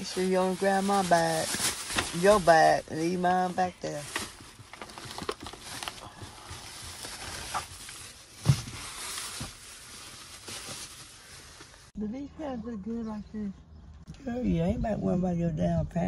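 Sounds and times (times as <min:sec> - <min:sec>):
plastic bags rustling: 0:00.0 - 0:11.9.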